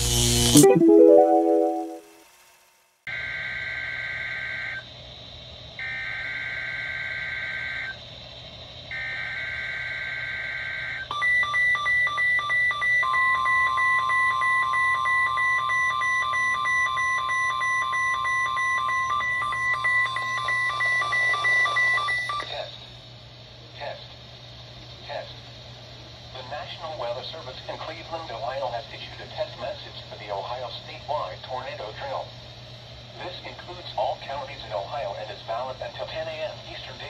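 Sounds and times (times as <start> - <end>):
steady warning alarm tone: 11.1 - 22.4.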